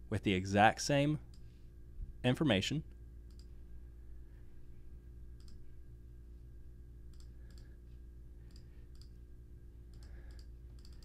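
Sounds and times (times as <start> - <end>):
steady low hum: 0.0 - 11.0
soft computer clicks: 3.2 - 3.6, 5.4 - 5.6, 7.1 - 7.7, 8.5 - 9.2, 9.9 - 11.0.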